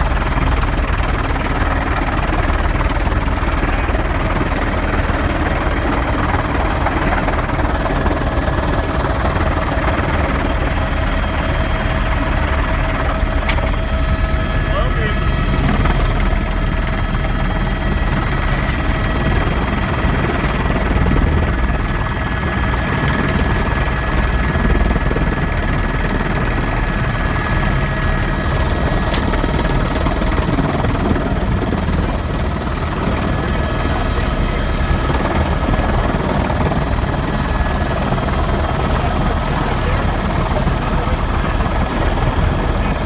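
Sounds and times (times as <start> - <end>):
helicopter rotor and turbine din: 0.0 - 43.0.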